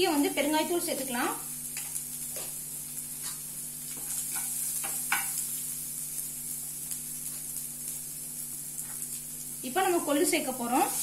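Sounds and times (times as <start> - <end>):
onions sizzling in hot oil: 0.0 - 11.0
spoon scraping a pan: 3.2 - 5.5.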